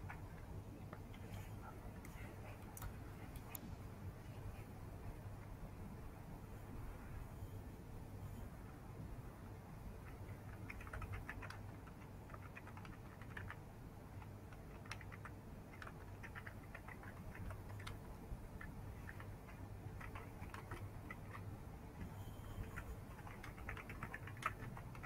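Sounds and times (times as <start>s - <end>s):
low steady hum: 0.0s - 25.0s
typing on computer keyboard: 10.0s - 25.0s.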